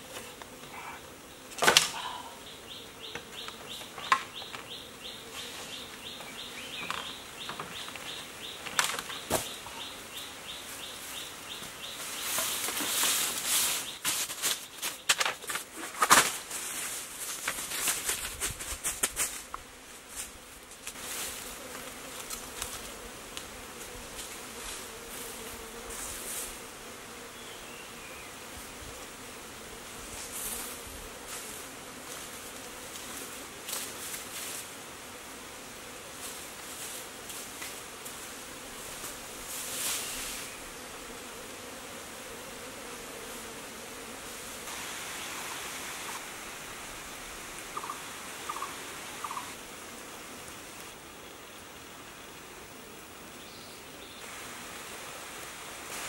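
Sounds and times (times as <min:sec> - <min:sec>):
bamboo dragged over leaf litter: 0:12.0 - 0:15.0, 0:20.0 - 0:22.3, 0:38.8 - 0:40.6, 0:55.7 - 0:56.0
rapid high ticking chirp: 0:47.8 - 0:49.5.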